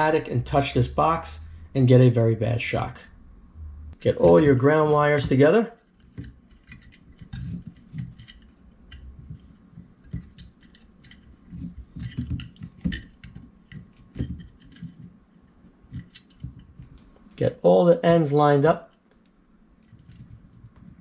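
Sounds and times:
wires tapping metal box: 0:05.2 - 0:15.2
soft rubbing and handling thumps: 0:05.2 - 0:17.4, 0:19.8 - 0:21.0.

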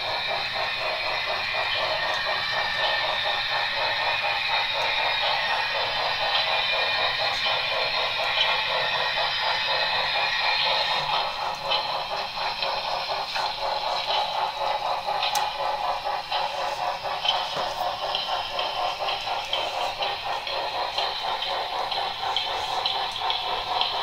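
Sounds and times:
model train running on track: 0:00.0 - 0:24.0.

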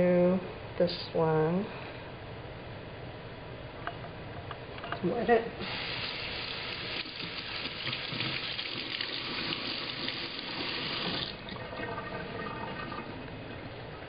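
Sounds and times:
tap running into sink: 0:07.0 - 0:11.3.

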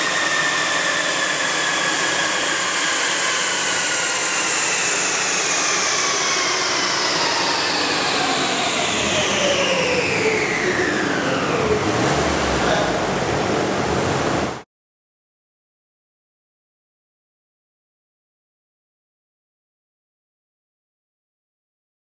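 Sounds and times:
cooling fan rushing: 0:00.0 - 0:14.6
rollers and drivetrain whine: 0:00.0 - 0:14.6.

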